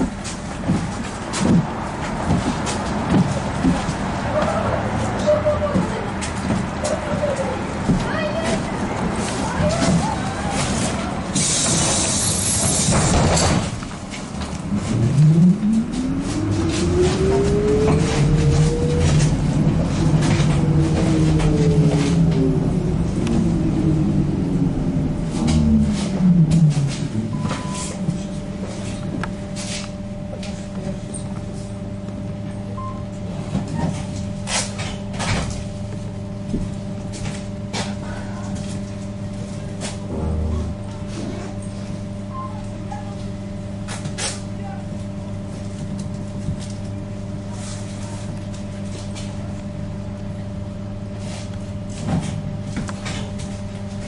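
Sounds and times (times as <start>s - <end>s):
rumble and road noise: 0.0s - 54.0s
trolleybus motor whining: 0.4s - 47.5s.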